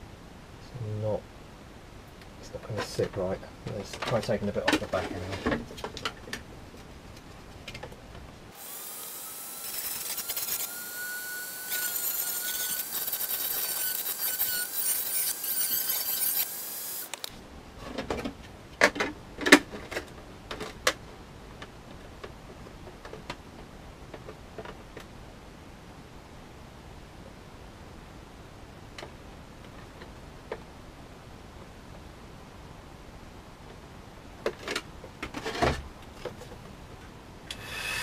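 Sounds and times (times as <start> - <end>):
knocks and clatters of handling: 2.7 - 8.3, 17.8 - 25.1, 34.4 - 36.8
rotary tool running at high speed: 8.6 - 17.2, 37.5 - 38.0.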